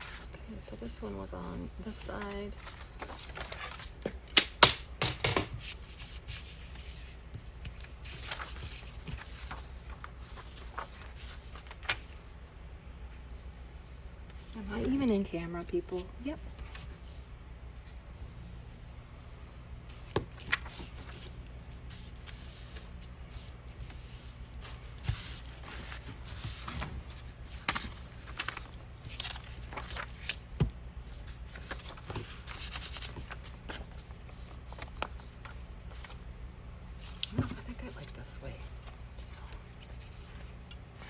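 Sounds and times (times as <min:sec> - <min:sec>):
paper rustling: 0:00.0 - 0:04.2, 0:05.6 - 0:12.2, 0:19.9 - 0:36.2
steady low hum: 0:05.6 - 0:41.0.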